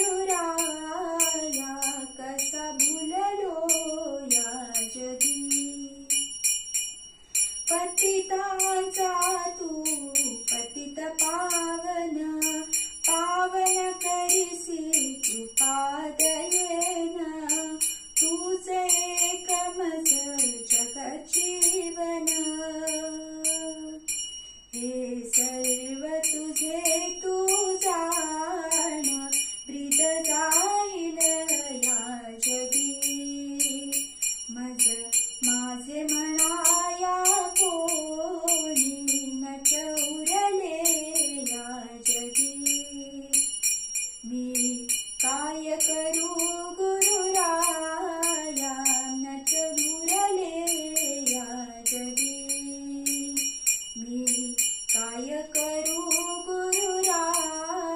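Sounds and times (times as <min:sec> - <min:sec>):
woman singing: 0:00.0 - 0:06.3, 0:07.7 - 0:24.2, 0:24.8 - 0:43.6, 0:44.2 - 0:57.9
small hand cymbals ringing: 0:00.0 - 0:57.9.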